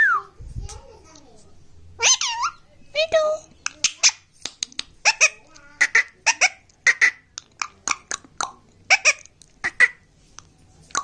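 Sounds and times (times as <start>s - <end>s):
parrot squawking and chirping: 2.0s - 2.6s, 3.6s - 4.4s, 5.0s - 8.2s, 8.9s - 10.1s.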